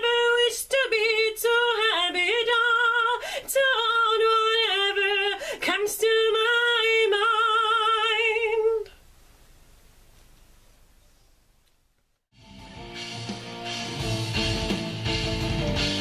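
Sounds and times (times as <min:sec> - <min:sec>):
woman singing: 0:00.0 - 0:09.0.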